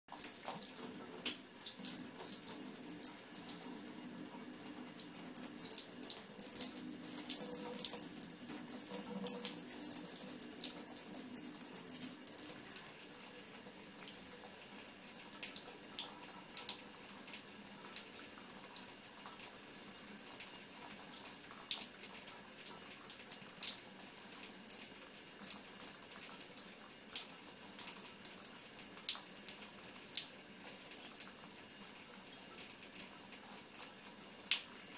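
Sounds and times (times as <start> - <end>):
water stream running into tub: 0.1 - 20.0.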